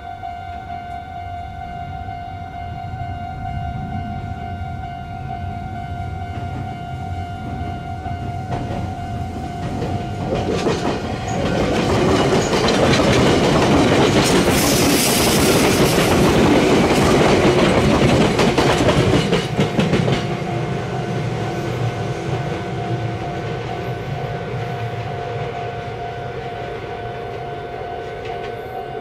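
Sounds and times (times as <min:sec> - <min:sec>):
steady high tone: 0:00.0 - 0:10.4, 0:20.3 - 0:29.0
train passing: 0:00.0 - 0:29.0
wheels clattering on rails: 0:06.0 - 0:26.1.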